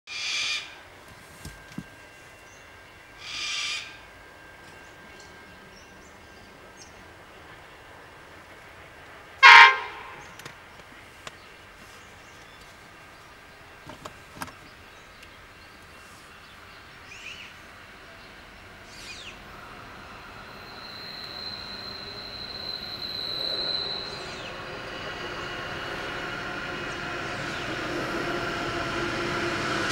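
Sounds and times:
distant locomotive horn blasts: 9.4 - 10.5.

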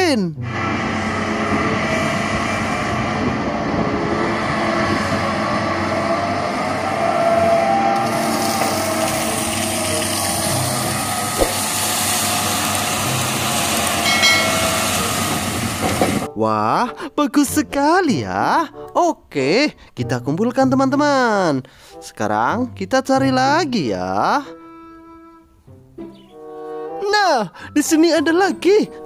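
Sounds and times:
high squeal: 0.4 - 12.6, 14.0 - 15.5
diesel engine running: 0.4 - 16.3.

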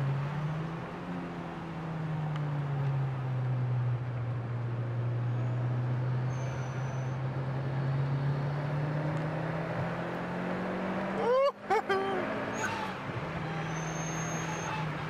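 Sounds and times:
tyre and road noise: 0.0 - 15.0.

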